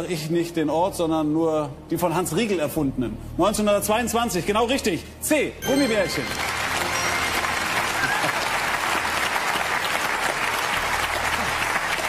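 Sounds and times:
audience applauding: 0:05.7 - 0:12.0.

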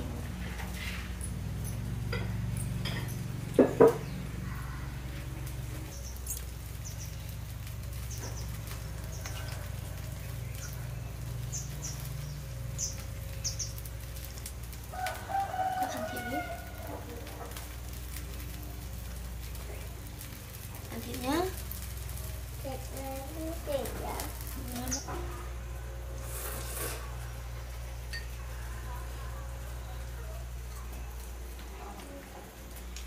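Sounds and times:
rooster crowing: 0:04.3 - 0:05.4, 0:08.6 - 0:11.1, 0:14.8 - 0:17.5, 0:28.2 - 0:30.0
steady low hum: 0:16.4 - 0:33.0.

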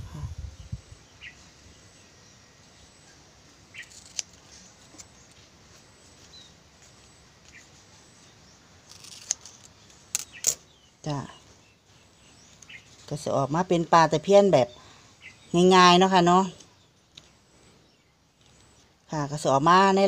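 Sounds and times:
scissors snipping leaf strips: 0:03.8 - 0:05.2, 0:08.8 - 0:10.6.

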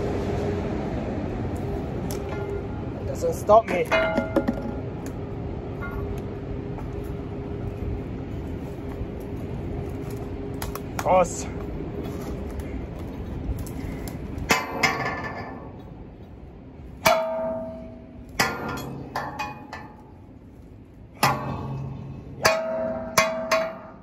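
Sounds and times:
stick clanging on metal handrail: 0:02.1 - 0:02.7, 0:03.5 - 0:05.2, 0:14.5 - 0:16.0, 0:17.0 - 0:20.3, 0:21.2 - 0:24.0.

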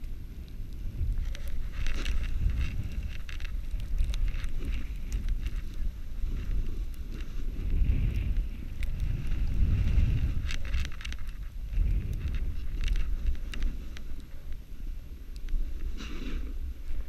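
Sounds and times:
wind rumbling on microphone: 0:00.0 - 0:17.0
snowboard scraping on snow: 0:04.5 - 0:10.4, 0:15.8 - 0:17.0.

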